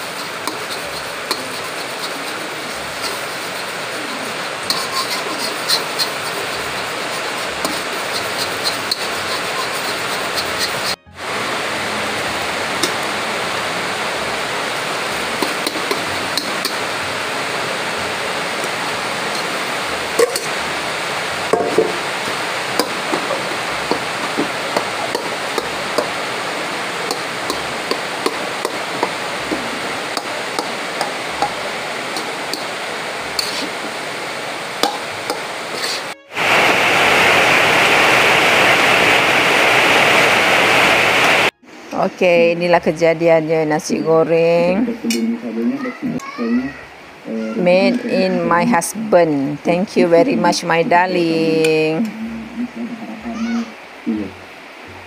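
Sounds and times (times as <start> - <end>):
metal spatula scraping wok: 0.0 - 11.1, 15.0 - 17.0, 18.6 - 20.6, 27.1 - 34.0, 34.8 - 36.7
frying hiss: 0.0 - 55.0.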